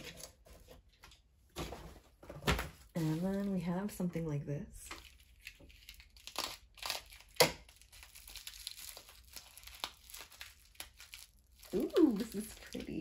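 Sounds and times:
paper packaging crinkling: 0:01.6 - 0:03.8, 0:04.9 - 0:13.0.

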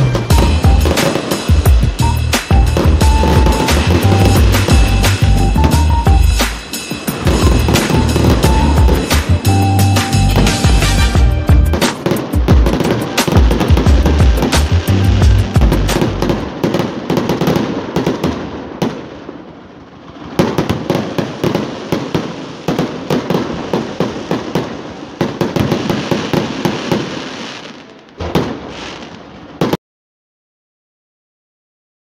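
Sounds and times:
fireworks exploding and crackling: 0:00.0 - 0:29.8.

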